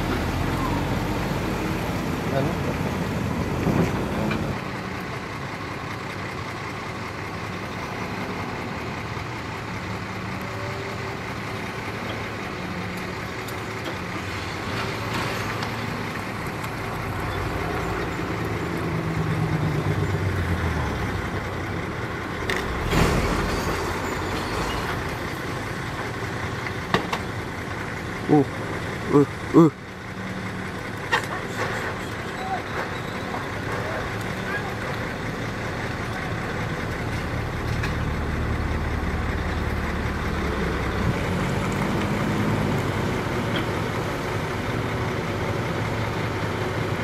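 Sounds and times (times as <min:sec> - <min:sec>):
heavy diesel machinery running: 0:00.0 - 0:47.0.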